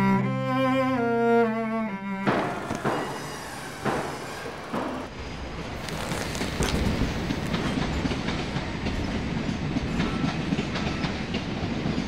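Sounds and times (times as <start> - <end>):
train rumbling: 2.1 - 12.0
wheels clicking over track: 5.7 - 9.0.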